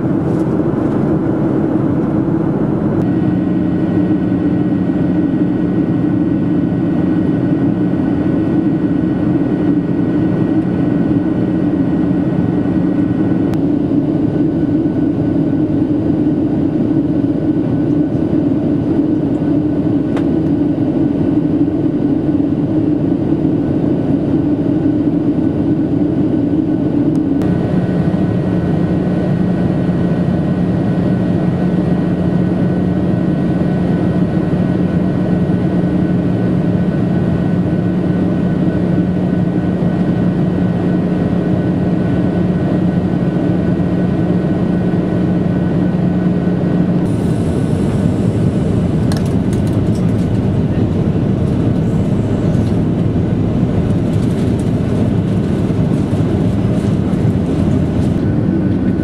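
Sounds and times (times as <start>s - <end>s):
jet engines droning: 0.0s - 59.0s
airflow rushing: 47.0s - 59.0s.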